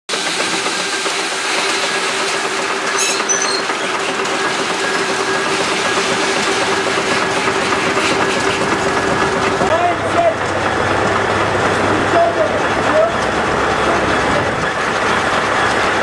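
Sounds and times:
steam engine running: 0.1 - 16.0
high chirp: 3.0 - 3.7.

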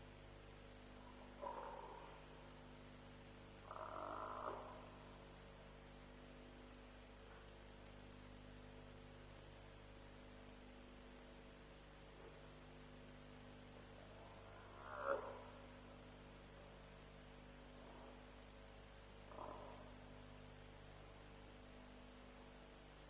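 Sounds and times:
steady electrical hum: 0.0 - 23.0
animal call: 1.1 - 2.3, 3.6 - 5.0, 14.1 - 15.7, 19.3 - 19.9.

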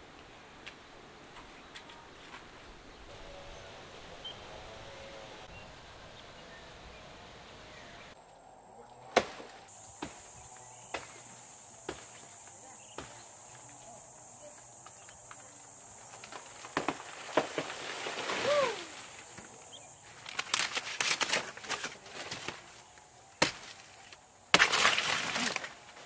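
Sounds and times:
insects droning: 0.0 - 26.0
dry leaves crackling and tearing: 20.0 - 26.0.

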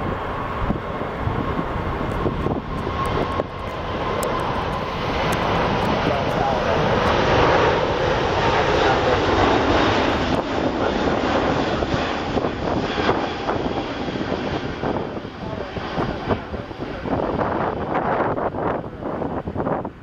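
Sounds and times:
jet engines roaring: 0.0 - 20.0.

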